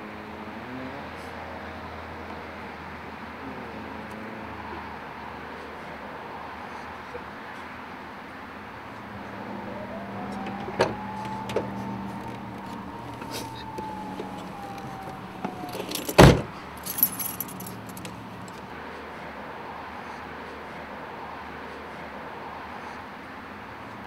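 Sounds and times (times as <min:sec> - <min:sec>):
truck door shutting thump: 0:10.4 - 0:16.5
keys jangling: 0:14.3 - 0:18.6.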